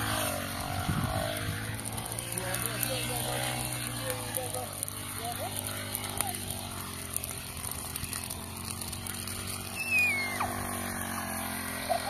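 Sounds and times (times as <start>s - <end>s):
steady engine hum: 0.0s - 12.0s
falling whistle-like chirp: 9.8s - 10.4s.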